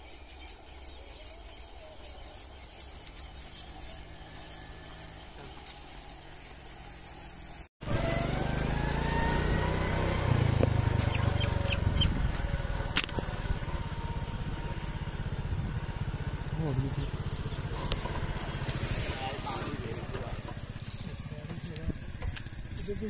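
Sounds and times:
footsteps crunching on stubble: 0.0s - 7.7s, 10.5s - 13.0s, 20.5s - 23.0s
engine hum with rising whine: 2.9s - 23.0s.

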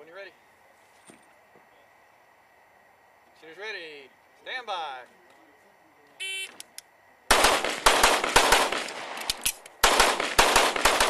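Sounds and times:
rapid pistol fire: 7.3s - 11.0s.

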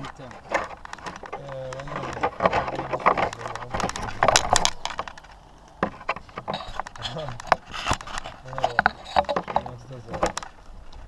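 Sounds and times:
plastic clicks and knocks: 0.5s - 10.6s.

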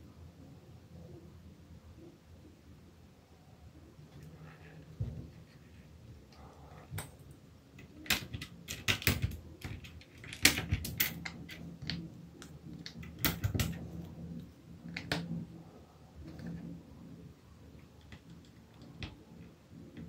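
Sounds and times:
keycaps clicking and clacking: 7.0s - 13.9s.

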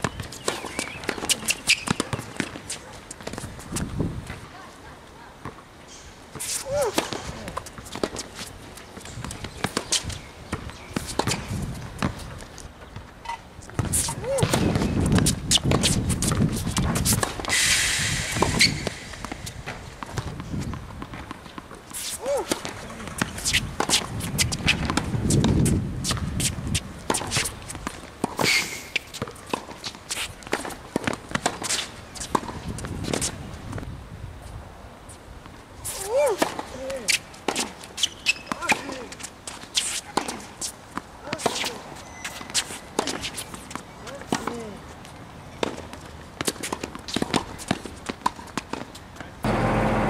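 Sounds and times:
racket striking tennis ball: 0.0s - 3.4s, 6.4s - 12.2s, 13.2s - 17.7s, 18.3s - 33.3s, 35.9s - 44.8s
footsteps and shoe scuffs: 41.4s - 43.8s.

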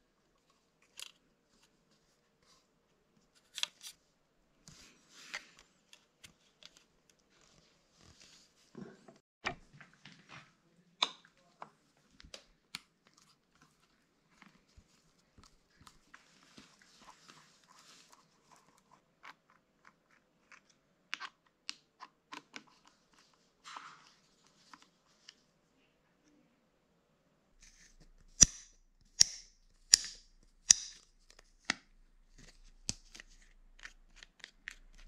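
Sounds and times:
hand tools clicking and tapping: 28.4s - 31.0s.

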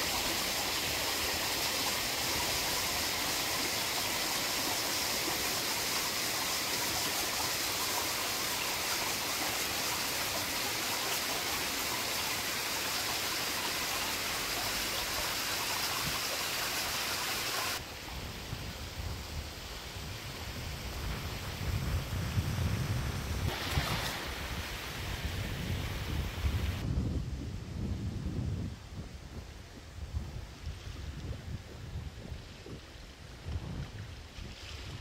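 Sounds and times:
water rushing along stony shore: 0.0s - 18.3s, 23.4s - 26.8s
wind rumble on microphone: 17.8s - 35.0s.

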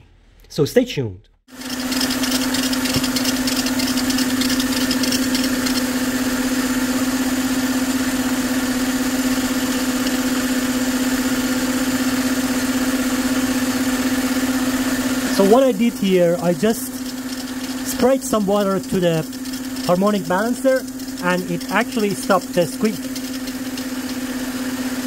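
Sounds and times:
water spraying: 1.5s - 7.2s, 14.0s - 25.0s
car engine idling: 15.3s - 25.0s.

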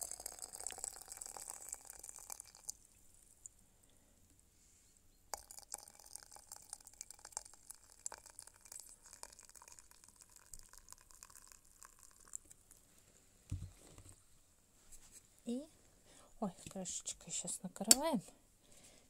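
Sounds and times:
water pouring into teapot: 0.0s - 2.9s, 5.3s - 12.8s.

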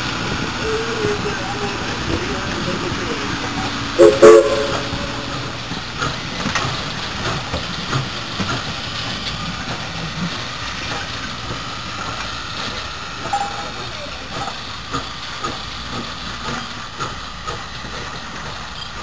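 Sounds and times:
steam locomotive rumbling past: 0.0s - 17.8s
steam whistle toots: 4.0s - 5.6s.

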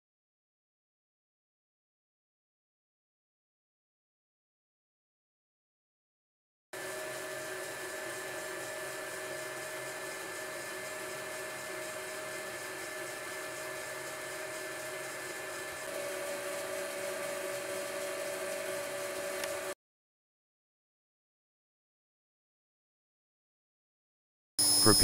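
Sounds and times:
lathe humming: 6.8s - 19.8s
lathe whine: 6.8s - 19.8s, 24.6s - 25.0s.

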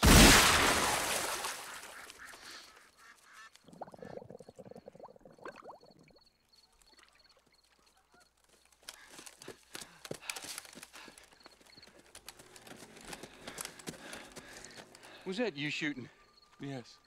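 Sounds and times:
waterfowl honking: 1.4s - 3.7s, 6.9s - 9.5s.

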